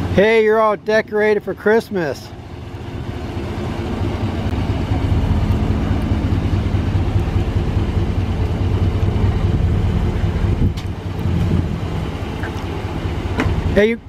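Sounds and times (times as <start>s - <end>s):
pickup truck engine running: 0.0s - 14.0s.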